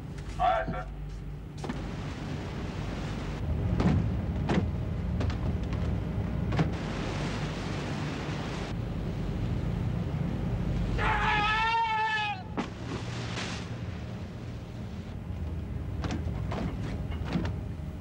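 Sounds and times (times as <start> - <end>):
ship engines rumbling: 0.0 - 18.0
rushing sea water: 1.6 - 15.2.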